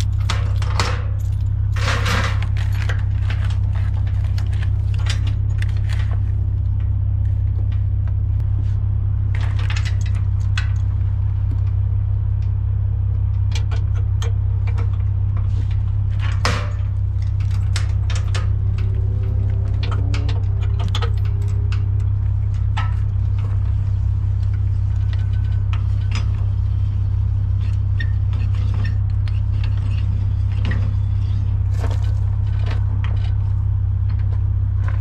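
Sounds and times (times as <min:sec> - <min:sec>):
metal chain clinking and rattling: 0:00.0 - 0:06.3, 0:16.0 - 0:34.4
truck engine idling: 0:00.0 - 0:35.0.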